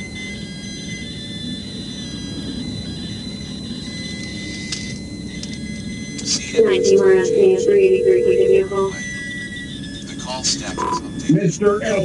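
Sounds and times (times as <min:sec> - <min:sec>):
faint high-pitched tones: 0:05.6 - 0:09.1.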